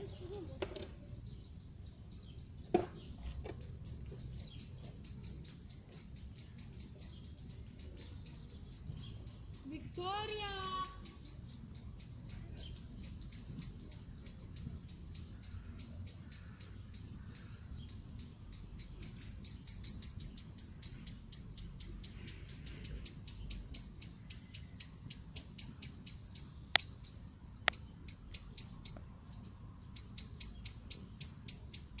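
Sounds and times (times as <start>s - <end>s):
bird chirping: 0.0s - 32.0s.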